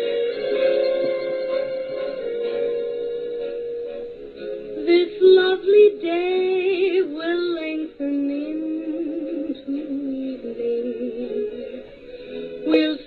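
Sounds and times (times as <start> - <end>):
sustained backing music: 0.0 - 13.0
person singing slow melody: 4.8 - 13.0.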